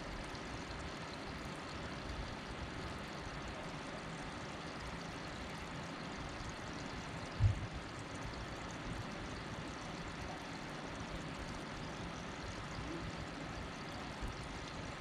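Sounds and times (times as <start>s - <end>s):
low thump: 7.4s - 7.6s.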